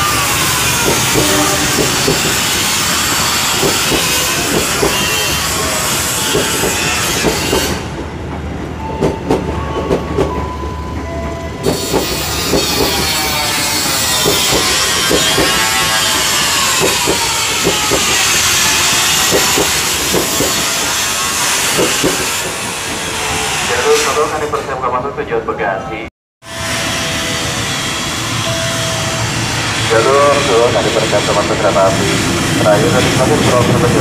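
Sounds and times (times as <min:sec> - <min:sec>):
train wheels clacking over rail joints: 0:00.4 - 0:08.1, 0:11.6 - 0:23.2.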